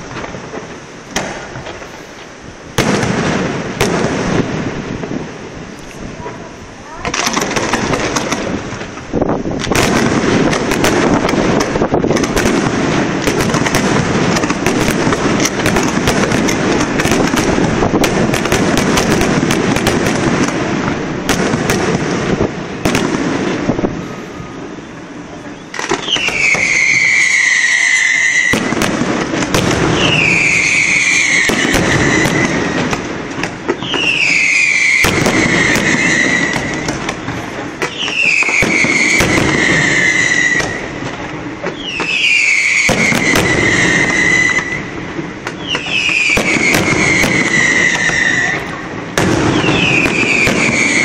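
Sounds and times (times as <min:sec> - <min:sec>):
fireworks crackling and banging: 0:00.0 - 0:51.0
long falling whistles: 0:24.0 - 0:28.7, 0:30.0 - 0:32.8, 0:33.7 - 0:36.9, 0:37.9 - 0:40.9, 0:41.7 - 0:45.0, 0:45.6 - 0:48.6, 0:49.5 - 0:51.0.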